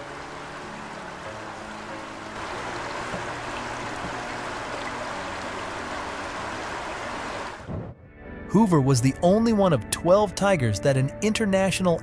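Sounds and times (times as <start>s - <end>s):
stream water running: 0.0s - 7.7s.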